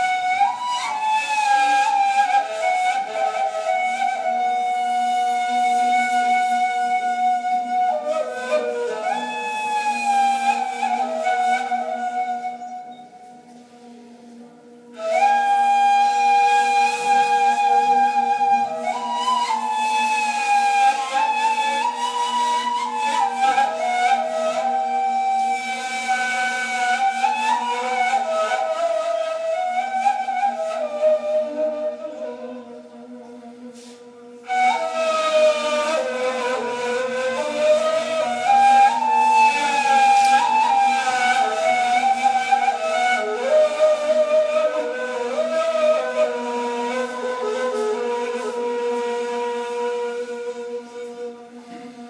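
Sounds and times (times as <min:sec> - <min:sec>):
reed flutes improvising: 0:00.0 - 0:52.0.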